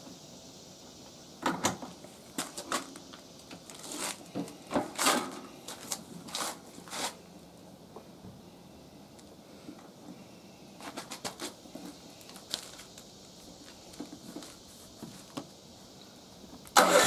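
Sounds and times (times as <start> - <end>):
clicks and clunks on generator: 1.4 - 3.7.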